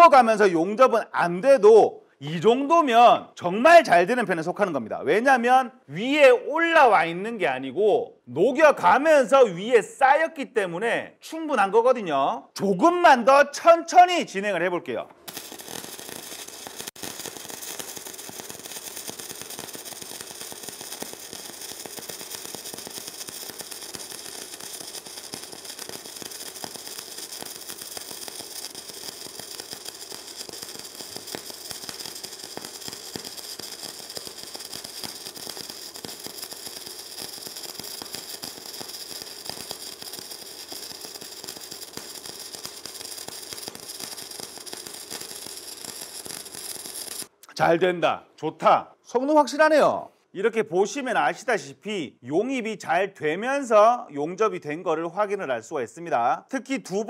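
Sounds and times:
welding arc crackling: 0:15.2 - 0:47.4.

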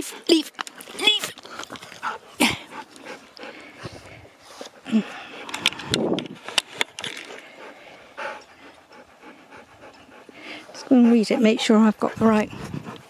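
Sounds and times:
handling clicks and rustling: 0:00.0 - 0:03.4, 0:04.6 - 0:07.6
dog panting: 0:01.5 - 0:05.6, 0:07.5 - 0:13.0.

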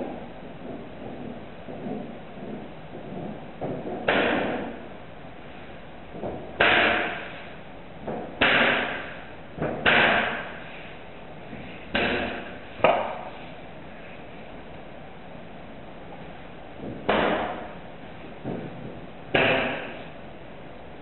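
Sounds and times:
sharp loud bangs: 0:19.3 - 0:20.0.

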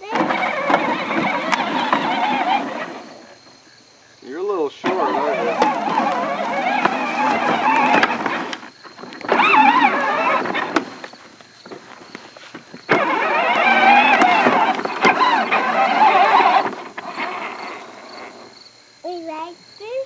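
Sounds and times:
electric motor whine: 0:00.0 - 0:03.3, 0:04.7 - 0:11.2, 0:12.8 - 0:18.5.

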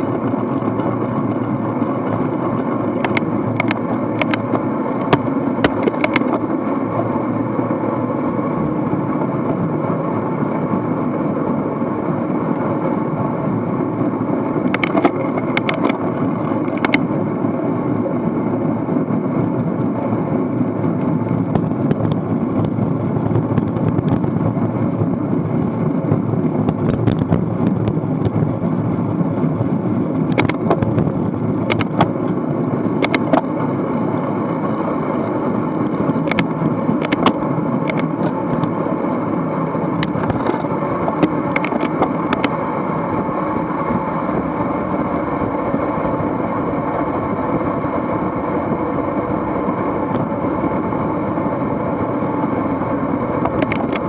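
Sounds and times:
bike tyre rumble on road: 0:00.0 - 0:54.0
wind rushing over microphone: 0:00.0 - 0:54.0
sharp clicks: 0:03.0 - 0:06.4, 0:14.7 - 0:16.0, 0:16.6 - 0:17.0, 0:31.7 - 0:32.2, 0:33.0 - 0:33.4, 0:36.2 - 0:38.7.

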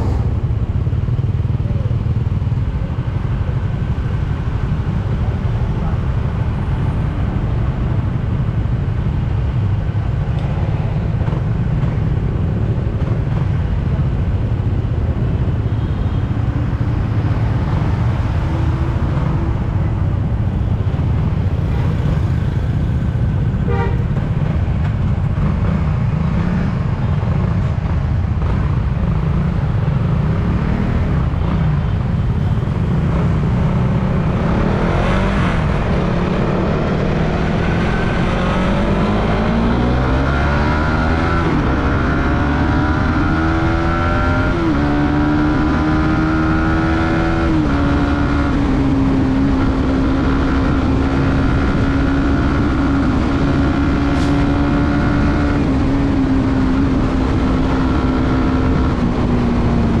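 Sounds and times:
horn toot: 0:23.6 - 0:24.1.

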